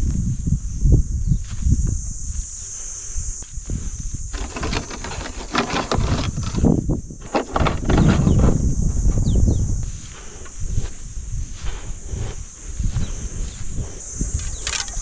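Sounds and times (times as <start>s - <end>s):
bare feet stepping through dry grass: 9.7s - 15.0s.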